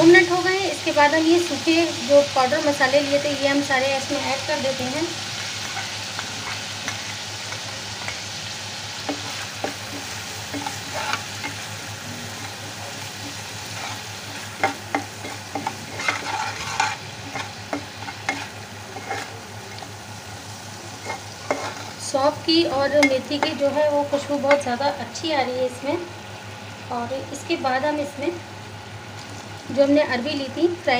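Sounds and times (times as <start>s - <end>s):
spices sizzling in oil: 0.0s - 30.9s
metal spatula scraping pan: 9.1s - 11.7s, 12.4s - 19.8s, 21.0s - 22.0s.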